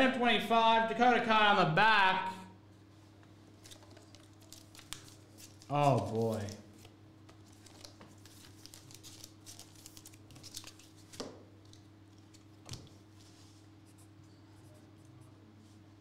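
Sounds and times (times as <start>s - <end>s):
faint steady hum: 0.0s - 16.0s
trading cards rustling: 3.5s - 12.6s.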